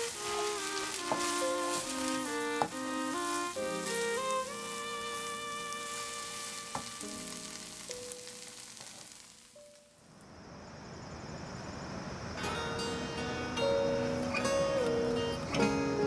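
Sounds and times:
soft background music: 0.0s - 8.6s, 12.4s - 16.0s
onions sizzling in a pan: 0.0s - 10.0s
steady hiss: 0.0s - 16.0s.

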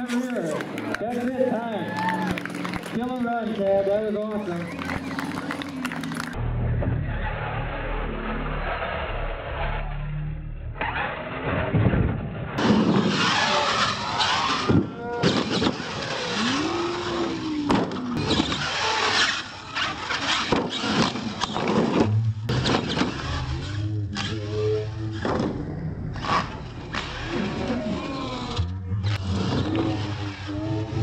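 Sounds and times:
crowd voices: 0.0s - 7.8s, 12.6s - 20.5s.

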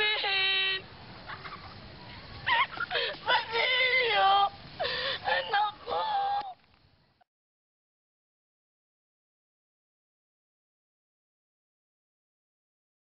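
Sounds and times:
woman calling out: 0.0s - 0.9s, 5.3s - 6.6s.

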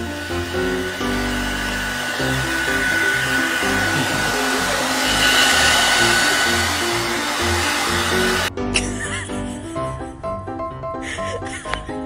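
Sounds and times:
hair dryer blowing: 0.0s - 8.5s
background music: 0.0s - 12.0s.

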